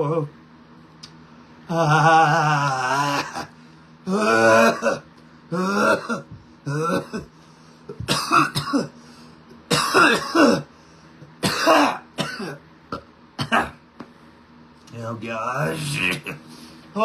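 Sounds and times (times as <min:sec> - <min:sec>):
man coughing: 0:04.1 - 0:07.3, 0:07.9 - 0:09.0, 0:09.7 - 0:10.7, 0:11.4 - 0:13.8.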